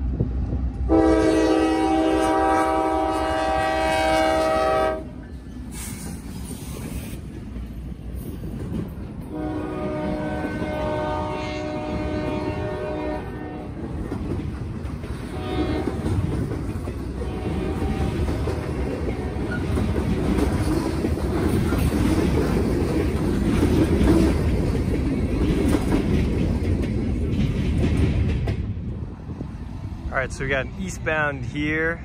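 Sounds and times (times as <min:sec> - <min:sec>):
train air horn blasts: 0:00.9 - 0:05.2, 0:09.3 - 0:13.8, 0:15.3 - 0:16.2, 0:17.2 - 0:18.3.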